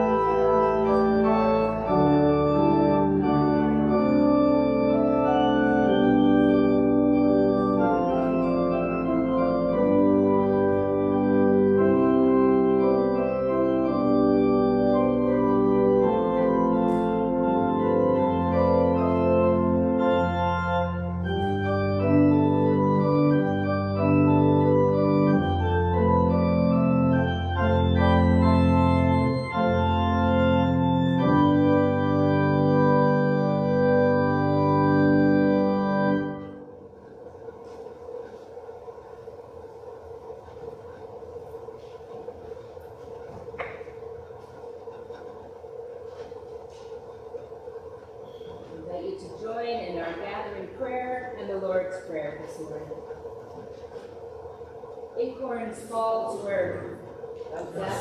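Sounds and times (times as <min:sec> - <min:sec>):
deep organ bass notes: 0:00.0 - 0:40.2
church organ chords: 0:00.0 - 0:58.0.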